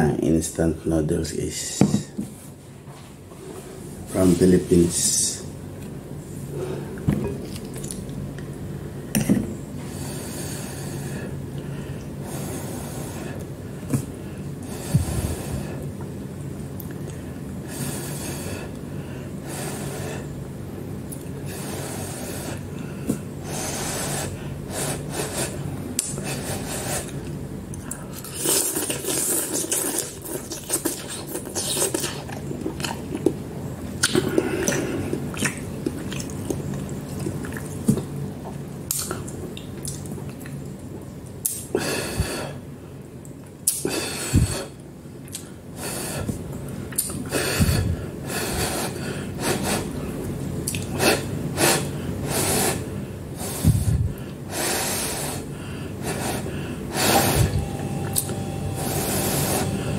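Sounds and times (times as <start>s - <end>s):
person slurping and chewing noodles: 23.5s - 33.4s
breathing through the nose: 43.8s - 44.8s, 47.3s - 50.0s, 51.0s - 57.5s.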